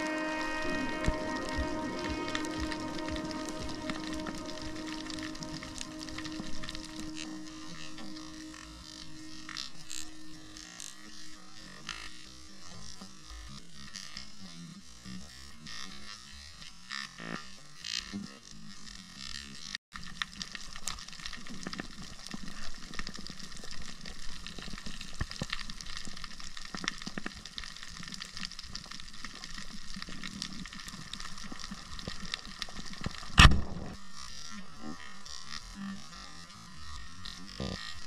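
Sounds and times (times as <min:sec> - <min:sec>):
dense underwater crackling: 0:20.0 - 0:33.5.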